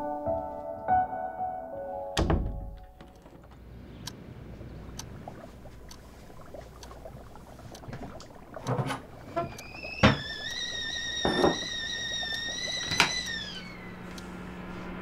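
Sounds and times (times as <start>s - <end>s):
small knocks: 11.2s - 11.8s.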